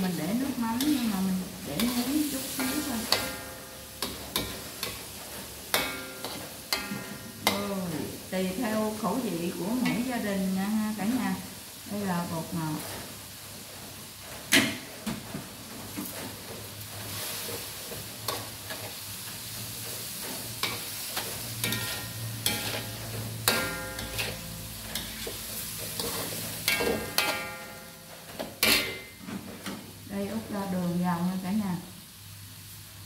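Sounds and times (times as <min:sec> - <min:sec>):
food sizzling in a wok: 0:00.0 - 0:33.0
metal spatula scraping a wok: 0:00.2 - 0:07.7, 0:16.0 - 0:29.2.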